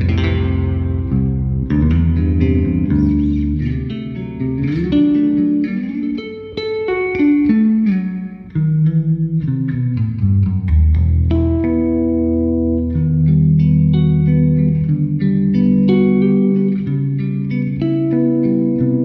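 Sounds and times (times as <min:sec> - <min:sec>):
electric bass picked through amp: 0:00.0 - 0:19.0.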